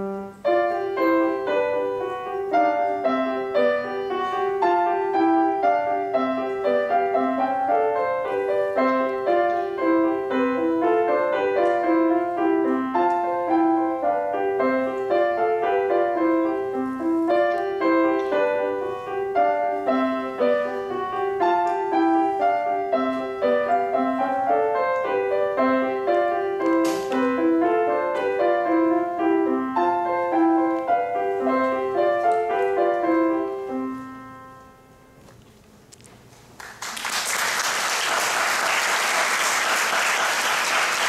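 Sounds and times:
solo grand piano: 0:00.0 - 0:35.3
audience applause: 0:36.6 - 0:41.0.

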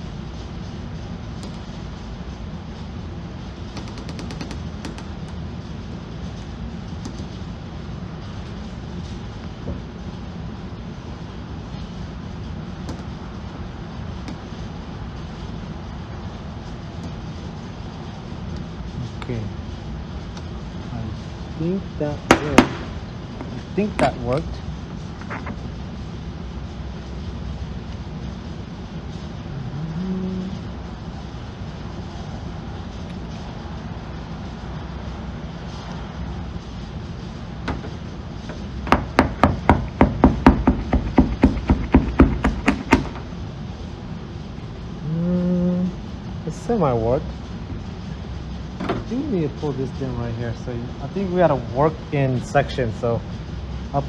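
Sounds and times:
low rumbling background noise: 0:00.0 - 0:54.0
hand tapping car hood: 0:38.9 - 0:43.2.

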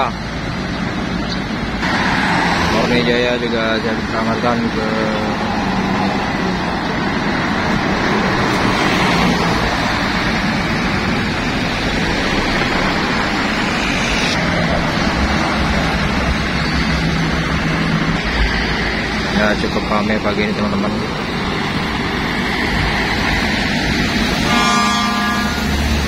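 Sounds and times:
road traffic: 0:00.0 - 0:26.0.

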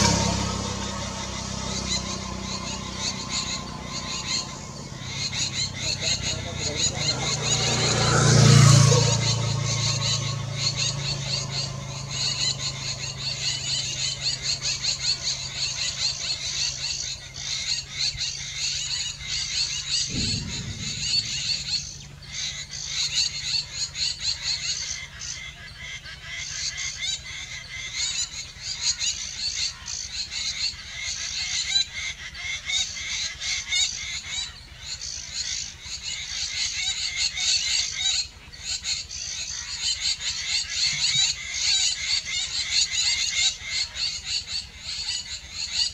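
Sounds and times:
chorus of calling animals: 0:00.0 - 0:45.9
low hum: 0:19.9 - 0:23.7
short thump: 0:20.1 - 0:22.5.

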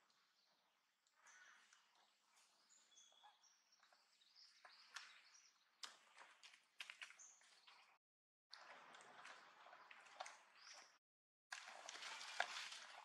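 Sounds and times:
small birds chirping: 0:00.0 - 0:08.0, 0:10.3 - 0:11.0.

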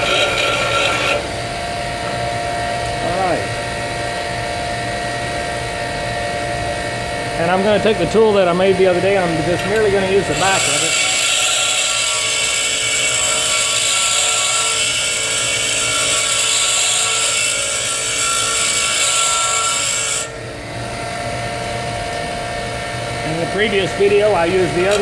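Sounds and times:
tool bit grinding hiss: 0:00.0 - 0:01.3, 0:07.4 - 0:20.3, 0:23.2 - 0:25.0
bench grinder motor running: 0:00.0 - 0:25.0.

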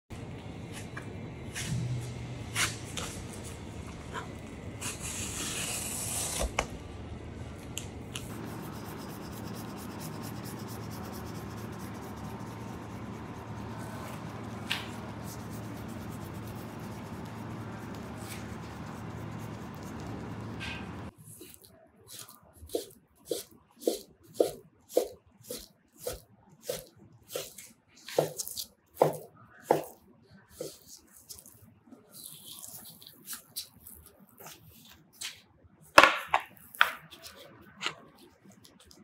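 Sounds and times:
knife scoring fish flesh: 0:21.4 - 0:30.0.

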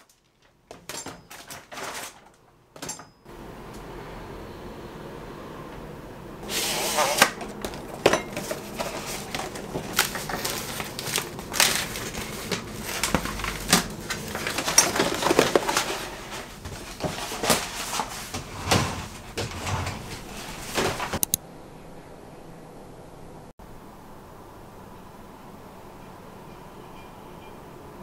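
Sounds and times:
plastic sheet crackling rustles: 0:00.0 - 0:02.4, 0:06.4 - 0:21.2
stiff plastic clicks: 0:21.2 - 0:21.4.

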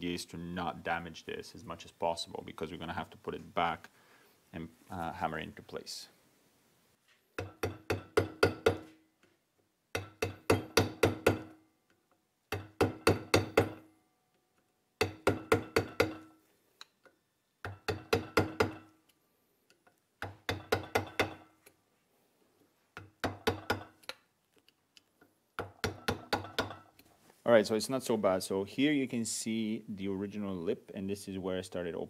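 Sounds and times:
hammer tapping metal: 0:07.4 - 0:09.0, 0:09.9 - 0:11.6, 0:12.5 - 0:13.9, 0:15.0 - 0:16.4, 0:17.6 - 0:19.0, 0:20.2 - 0:21.5, 0:23.0 - 0:24.2, 0:25.6 - 0:26.9.

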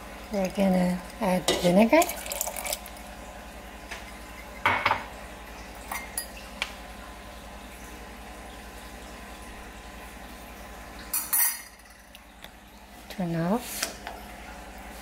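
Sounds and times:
vinegar pouring into pot: 0:00.3 - 0:03.3
kitchenware clattering against pot: 0:04.6 - 0:05.1.

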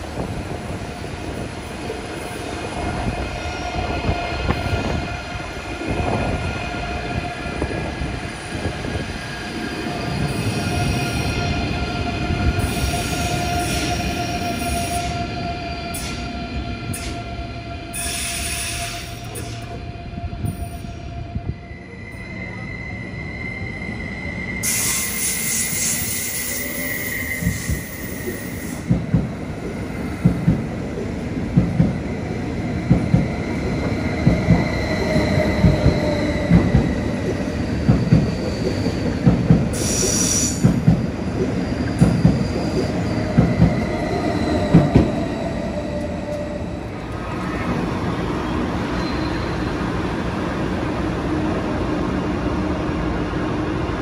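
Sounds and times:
train rumble: 0:00.0 - 0:54.0
high wheel squeal: 0:21.7 - 0:28.8, 0:48.4 - 0:49.8.

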